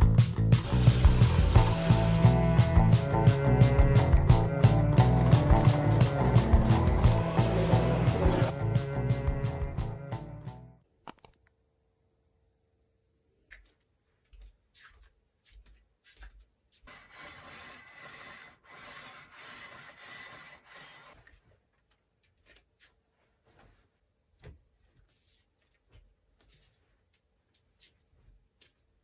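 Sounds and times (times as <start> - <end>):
window blind rubbing: 5.0 - 8.5, 16.9 - 21.2.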